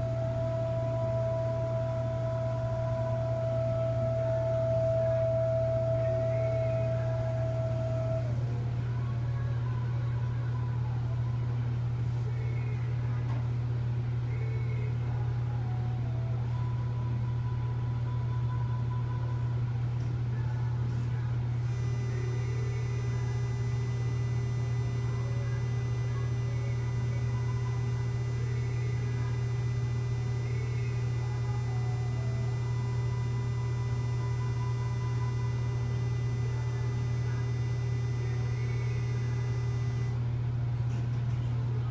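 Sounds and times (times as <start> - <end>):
high-pitched whine: 0.0 - 8.4, 21.7 - 40.2
machine electrical hum: 0.0 - 41.9
low steady tone: 21.7 - 40.2.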